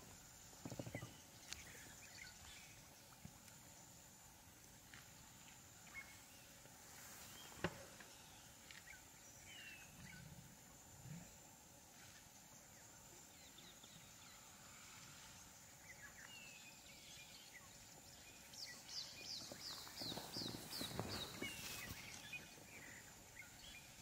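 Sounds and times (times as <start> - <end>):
birds chirping: 15.4 - 24.0
rustling and crackling: 19.4 - 22.6.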